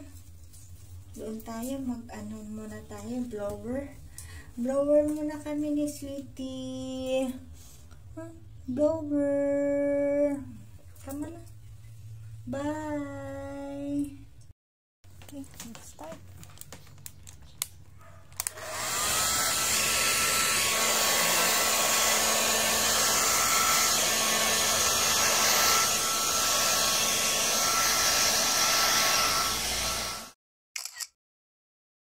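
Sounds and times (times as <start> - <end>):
hair dryer running: 18.4 - 30.4.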